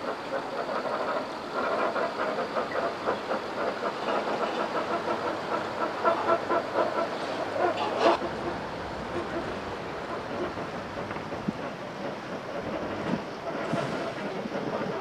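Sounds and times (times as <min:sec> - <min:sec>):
low engine hum: 0:08.2 - 0:11.7.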